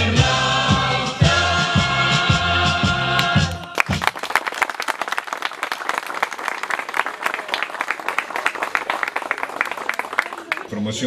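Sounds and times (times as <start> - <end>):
group applauding: 3.2 - 10.8.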